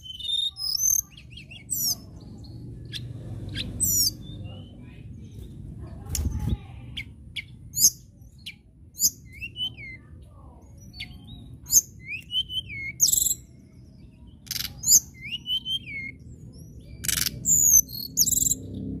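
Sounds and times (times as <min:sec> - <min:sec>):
bird singing high sharp notes: 0:00.0 - 0:04.8, 0:07.0 - 0:10.1, 0:10.8 - 0:13.5, 0:14.2 - 0:18.7.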